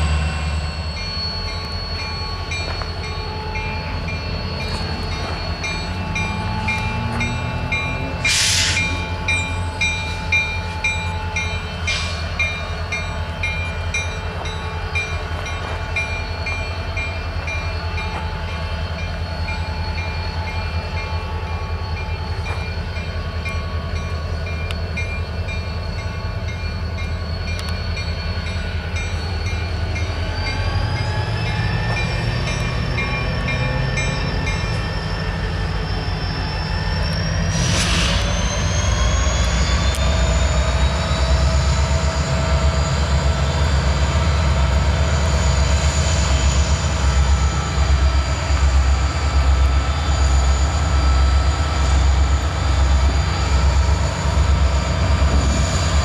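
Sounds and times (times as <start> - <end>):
diesel locomotive engine rumbling: 0.0 - 56.0
air hissing: 8.2 - 9.0, 37.5 - 38.7.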